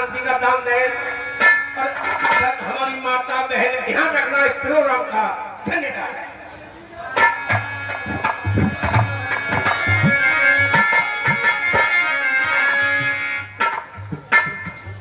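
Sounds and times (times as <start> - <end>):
barrel drum beating: 7.2 - 15.0
sustained melody of held notes: 7.2 - 15.0.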